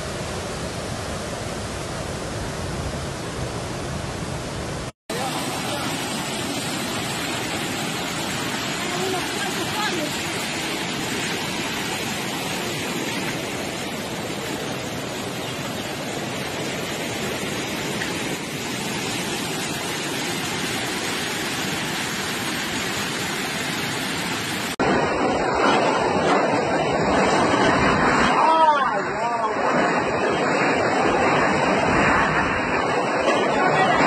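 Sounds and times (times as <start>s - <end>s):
floodwater rushing: 0.0s - 34.0s
loud noise: 24.8s - 34.0s.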